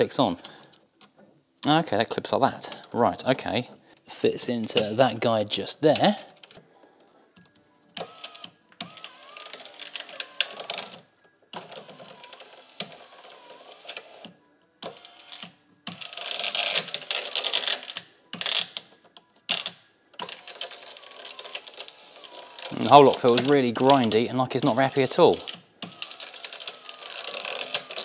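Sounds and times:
electric window motor whine: 8.0s - 15.5s, 20.3s - 23.5s, 25.8s - 28.0s.

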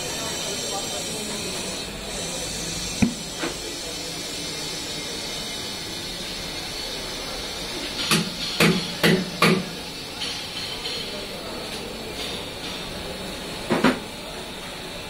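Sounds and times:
compressed air hissing: 0.0s - 6.3s.

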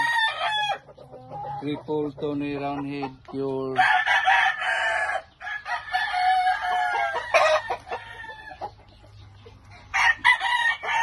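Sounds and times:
roosters crowing: 0.0s - 11.0s.

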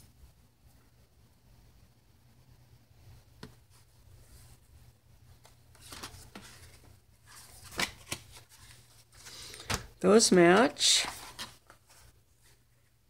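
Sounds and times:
paper pages rustling: 5.4s - 12.8s.

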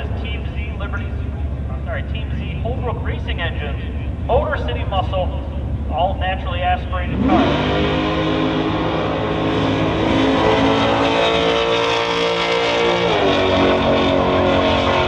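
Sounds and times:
car engine at full throttle: 0.0s - 15.0s.

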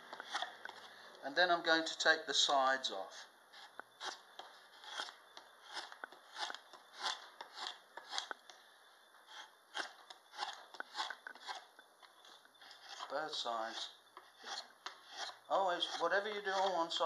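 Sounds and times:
draw knife slicing wood: 9.3s - 11.6s.

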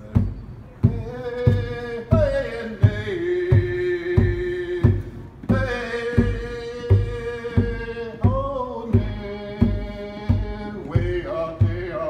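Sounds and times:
drum struck steadily: 0.0s - 12.0s.

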